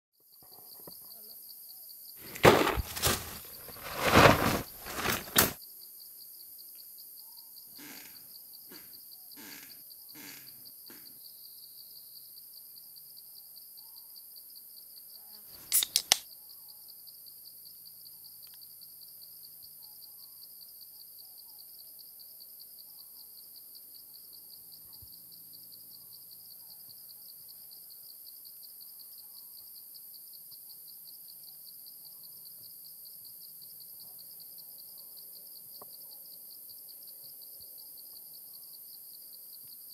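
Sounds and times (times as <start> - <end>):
insects trilling: 0.2 - 39.9
footsteps on dry leaves: 2.2 - 5.6
can tab snapped open: 15.6 - 16.2.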